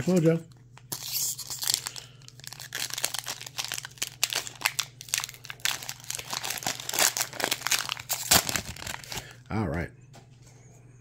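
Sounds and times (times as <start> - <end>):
foil wrapper tearing and crinkling: 0.0 - 9.4.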